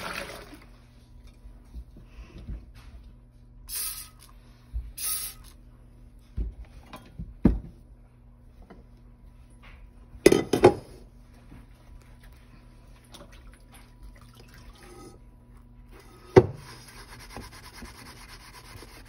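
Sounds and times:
spray bottle squirts: 3.7 - 4.3, 5.0 - 5.5.

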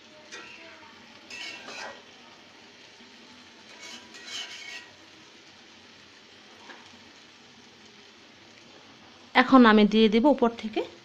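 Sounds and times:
gravy sizzling: 0.0 - 11.0
spatula scraping a pot: 1.3 - 2.0, 3.6 - 5.0.

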